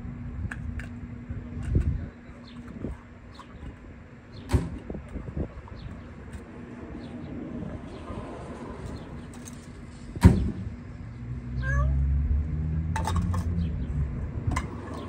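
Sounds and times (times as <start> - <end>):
low steady rumble: 0.0 - 15.0
cat meowing: 11.6 - 12.0.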